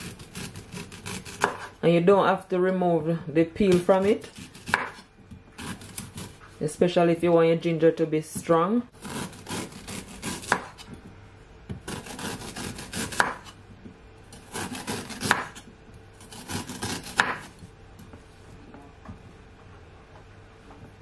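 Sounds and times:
knife slicing ginger: 0.0s - 1.8s, 3.7s - 6.4s, 9.0s - 10.9s, 11.7s - 13.6s, 14.3s - 17.6s.

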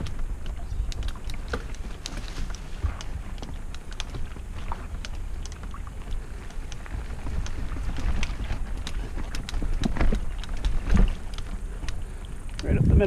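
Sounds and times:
bike clicks and rattles: 0.0s - 12.8s
wind and ride rumble: 0.0s - 13.0s.

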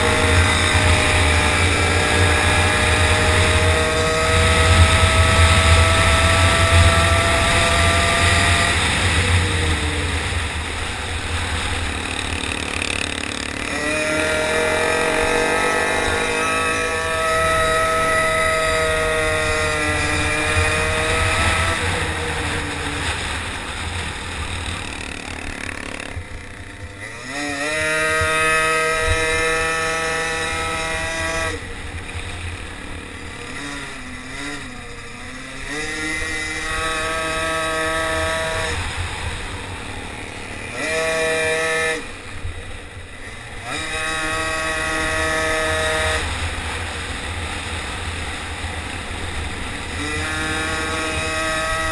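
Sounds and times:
small engine revving: 0.0s - 51.9s.

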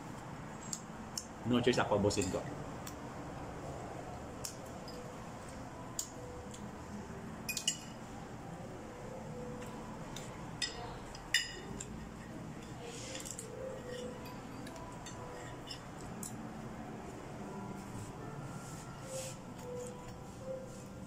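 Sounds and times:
room noise: 0.0s - 21.0s
metal fork clinking on plate: 7.5s - 8.0s, 12.6s - 16.4s.

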